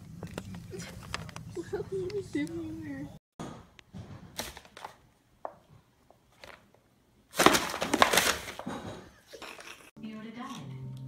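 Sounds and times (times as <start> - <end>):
paper bag crinkling: 7.3 - 8.8.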